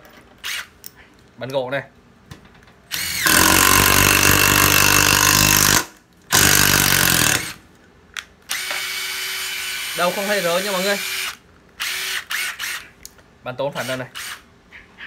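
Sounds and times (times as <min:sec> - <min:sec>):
impact driver driving screw into wood: 0:02.9 - 0:07.6, 0:08.5 - 0:10.0.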